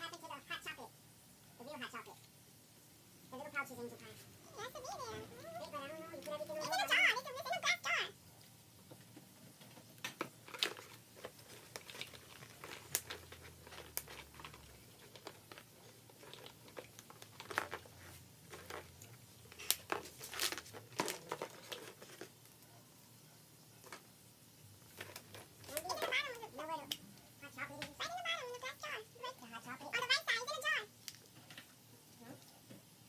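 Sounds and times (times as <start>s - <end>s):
plastic rustling: 8.9s - 22.8s, 24.7s - 31.8s
plastic eggs clicking: 10.0s - 22.4s.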